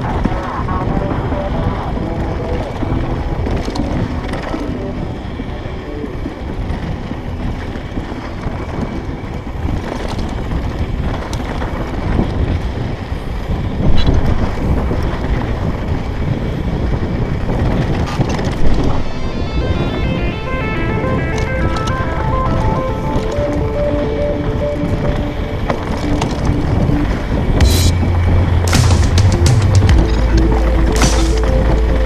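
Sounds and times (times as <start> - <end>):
wind on microphone: 0.0 - 32.0.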